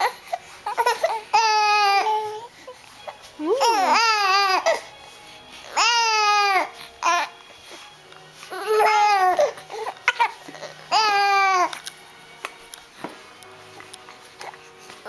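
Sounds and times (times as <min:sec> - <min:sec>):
infants cooing: 0:00.0 - 0:02.8, 0:03.4 - 0:04.9, 0:05.6 - 0:07.4, 0:08.4 - 0:11.8.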